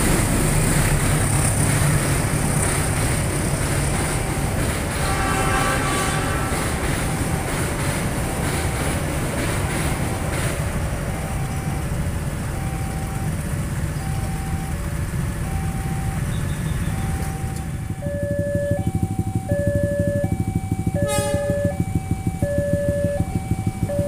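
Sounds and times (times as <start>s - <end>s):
train wheels clattering: 0.0s - 13.2s, 16.5s - 24.0s
engines idling: 0.0s - 24.0s
level crossing alarm two-note chime: 16.9s - 24.0s.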